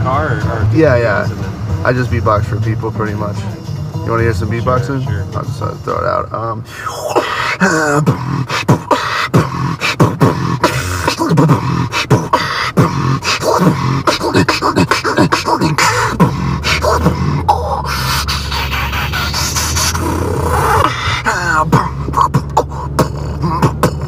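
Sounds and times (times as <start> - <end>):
low steady rumble: 0.0 - 24.0
person beatboxing: 6.8 - 24.0.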